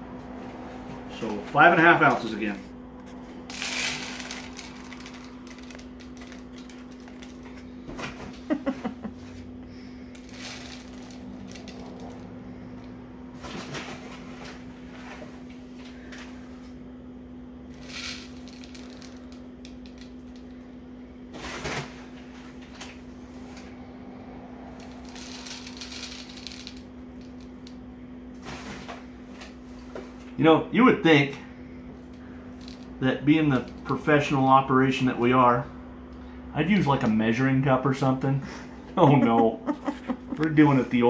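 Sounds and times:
steady low hum: 0.0s - 41.0s
grain rattling into plastic tub: 3.5s - 8.6s, 10.2s - 12.3s, 17.7s - 20.5s, 24.7s - 27.8s, 32.6s - 32.9s.

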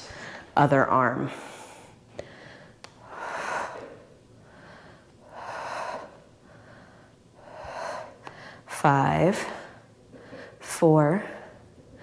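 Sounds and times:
woman breathing hard: 1.2s - 8.7s, 9.3s - 10.6s.

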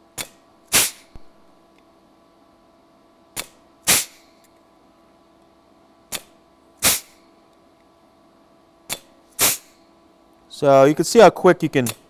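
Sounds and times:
sharp snap of punching sheet metal: 0.2s - 1.1s, 3.4s - 4.2s, 6.1s - 7.2s, 8.9s - 9.8s.

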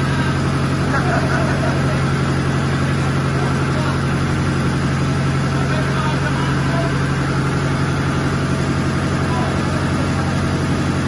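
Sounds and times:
marine diesel engine drone: 0.0s - 11.0s.

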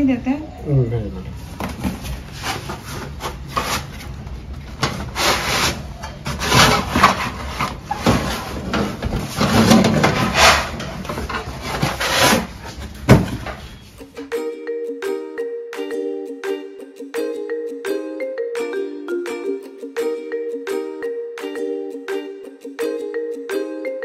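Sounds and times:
rough scraping and rubbing: 2.0s - 4.1s, 5.0s - 12.9s.

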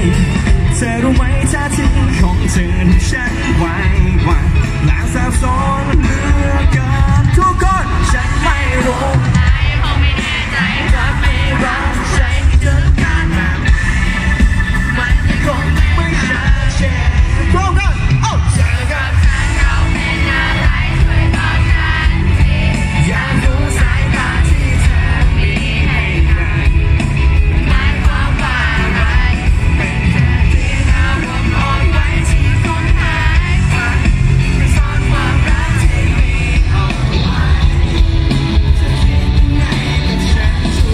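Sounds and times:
live band playing: 0.0s - 40.9s
man singing lead vocal: 0.0s - 40.9s.

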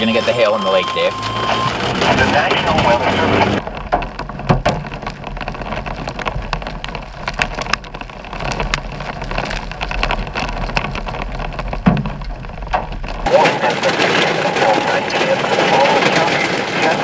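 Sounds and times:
hail ticking on car roof: 0.0s - 17.0s
rain hissing: 13.2s - 17.0s.

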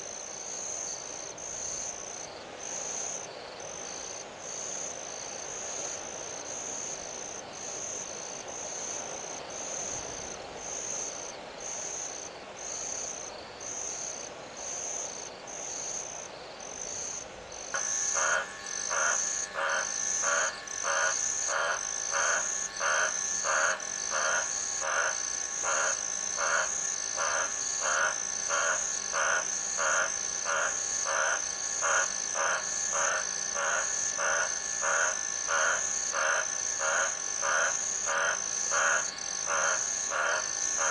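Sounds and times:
insects chirping: 0.0s - 40.9s
repeated animal call: 17.8s - 40.9s.

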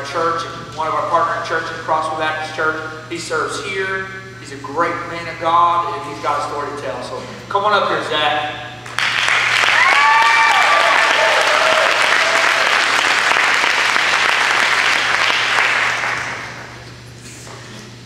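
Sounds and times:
audience applauding: 8.9s - 16.7s
person whooping: 9.7s - 12.8s.

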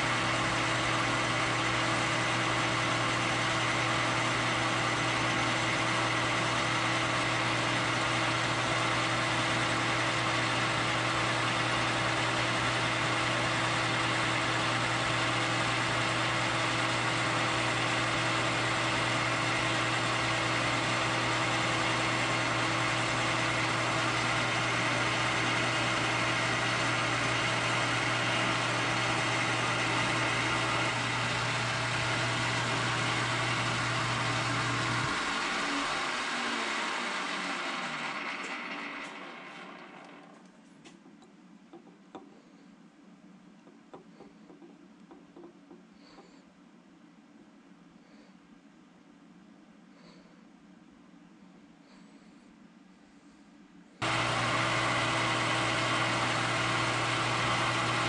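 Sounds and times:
metal lathe humming: 0.0s - 40.4s, 54.0s - 58.0s.

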